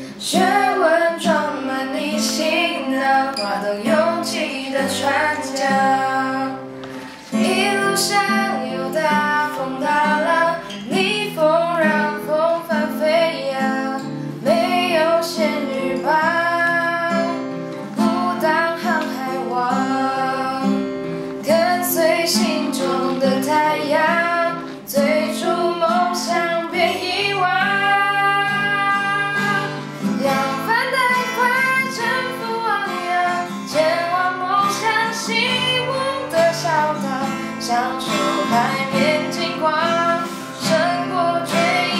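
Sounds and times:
strummed acoustic guitar: 0.0s - 41.9s
woman singing: 0.0s - 41.9s.

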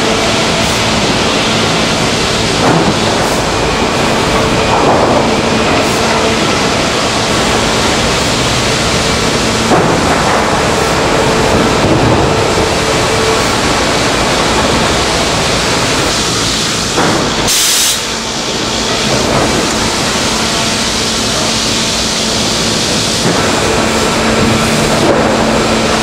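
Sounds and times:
timber profiling machine running: 0.0s - 26.0s
short hiss: 17.5s - 18.1s.

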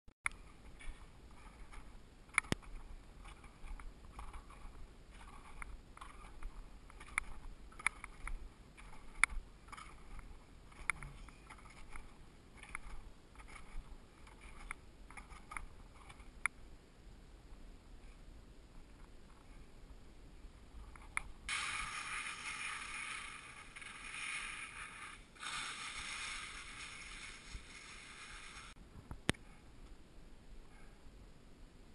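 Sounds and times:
sharp clicks: 0.2s - 16.6s
skis scraping over snow: 21.5s - 28.8s.

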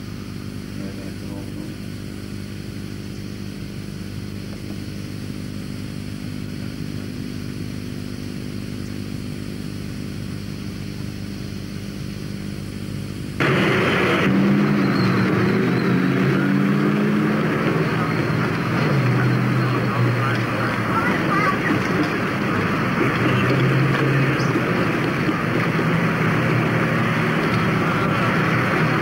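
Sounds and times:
steady drone: 10.1s - 29.0s
vehicle noise: 12.9s - 29.0s
crowd voices: 13.4s - 29.0s.

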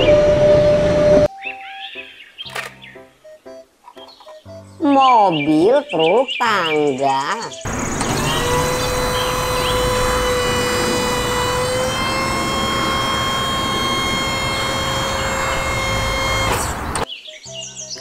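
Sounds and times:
engine rumble: 7.7s - 17.1s
hydraulic system whining: 7.7s - 17.1s.

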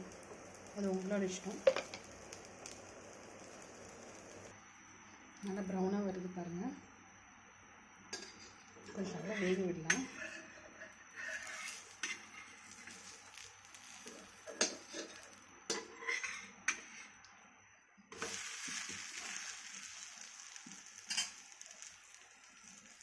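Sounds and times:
light frying sizzle: 0.0s - 23.0s
steel spatula scraping griddle: 8.1s - 17.2s.

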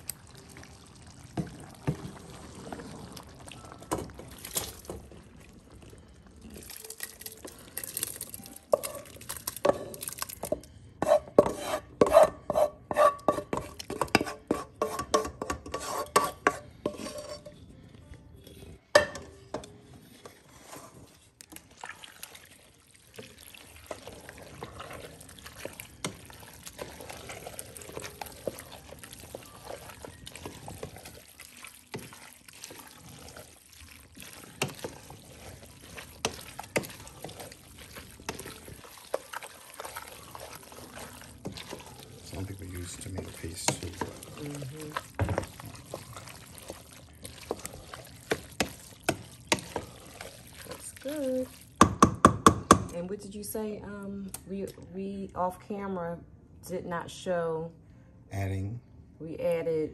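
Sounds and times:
spatula stirring thick sauce: 0.0s - 17.6s, 19.5s - 52.9s
spatula knocking on metal pot: 51.8s - 53.0s.

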